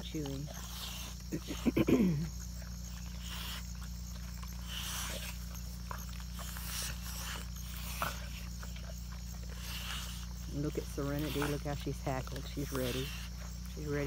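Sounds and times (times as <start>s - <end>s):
dogs gnawing bone: 0.0s - 14.0s
wet chewing: 0.0s - 14.0s.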